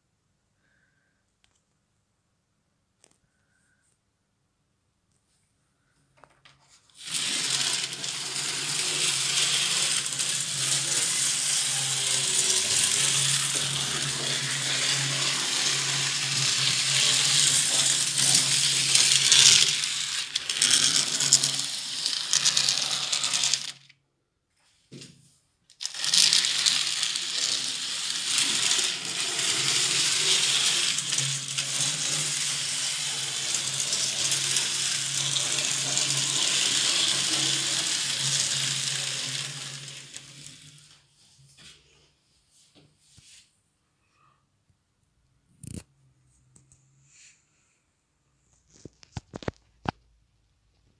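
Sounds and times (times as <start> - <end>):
small wheels rattling on rails: 7.0 - 23.8, 25.8 - 40.3
model train motor whir: 7.0 - 23.9, 25.7 - 41.0.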